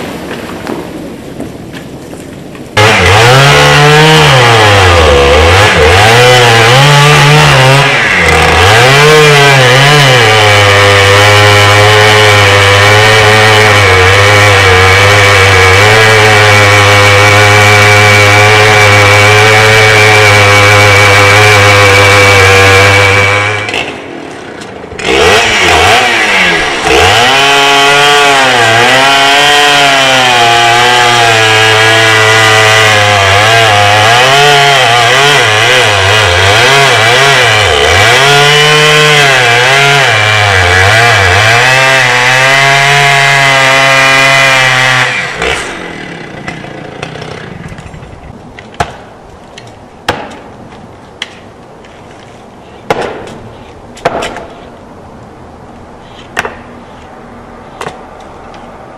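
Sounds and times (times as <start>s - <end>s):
chainsaw cutting wood: 2.8s - 50.5s, 52.9s - 53.4s, 54.0s - 54.6s
axe knocks on wood: 54.0s - 54.5s.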